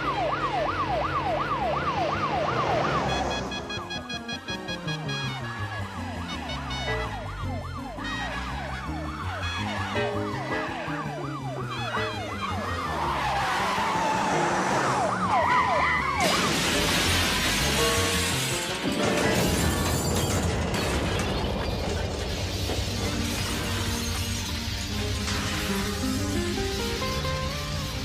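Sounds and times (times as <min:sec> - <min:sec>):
film score music: 0:00.0 - 0:16.2
siren wailing: 0:00.0 - 0:16.6.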